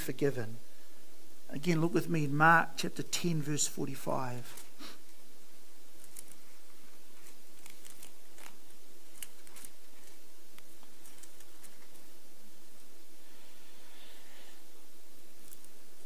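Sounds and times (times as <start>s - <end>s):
steady hiss: 0.0s - 16.0s
thin pages turning: 4.5s - 4.8s, 6.0s - 12.1s.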